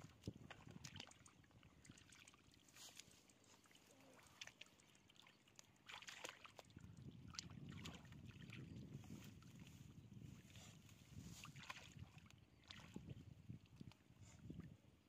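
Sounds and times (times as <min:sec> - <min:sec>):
small splashes: 0:00.0 - 0:09.5, 0:11.3 - 0:14.7
sloshing in muddy puddle: 0:00.0 - 0:09.8, 0:10.5 - 0:14.7.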